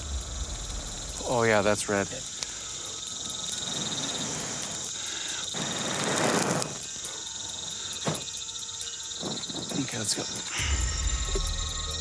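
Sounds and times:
insects trilling: 0.0 - 12.0.

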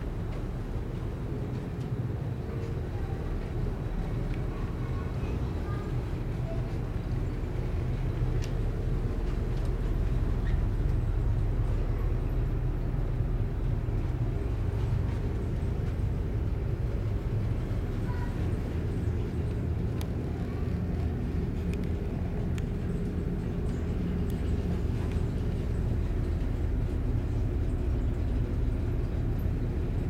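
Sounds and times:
ship engines droning: 0.0 - 30.0
faint clicks: 9.2 - 11.0, 19.4 - 23.1, 23.7 - 26.5.

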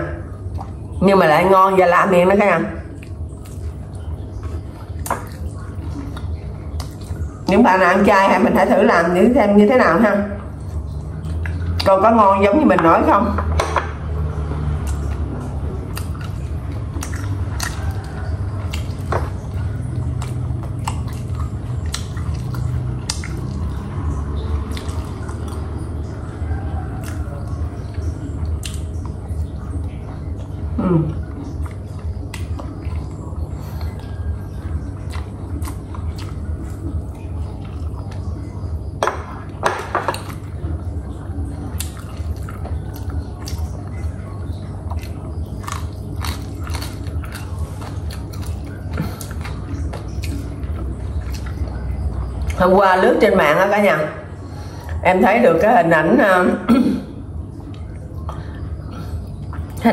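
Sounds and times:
low steady hum: 0.0 - 59.9
person chewing food: 2.9 - 7.5, 10.4 - 11.9, 14.0 - 52.6, 57.3 - 59.9
wet mouth sounds: 14.7 - 25.8, 41.4 - 52.6.

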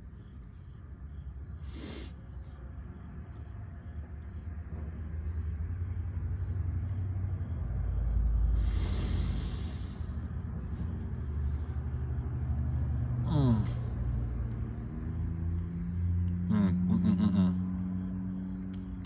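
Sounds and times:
road traffic rumble: 0.0 - 19.0
burst of hiss: 8.6 - 10.0.

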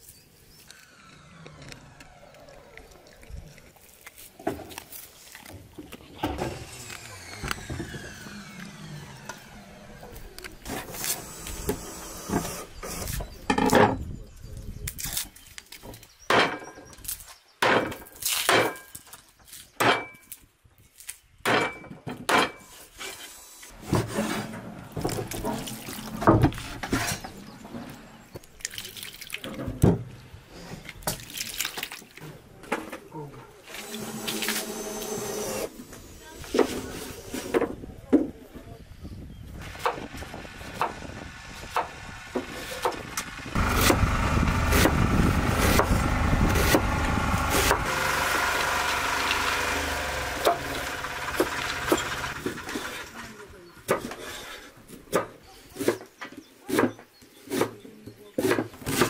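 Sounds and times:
water splashing: 25.0 - 26.6, 28.4 - 29.6, 30.9 - 32.3.

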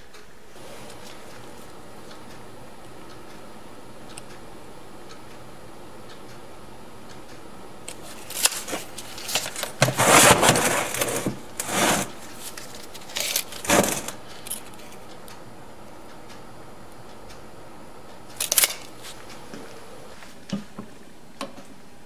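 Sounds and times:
scraping clattering on metal bench: 9.8 - 12.2, 13.6 - 14.2.

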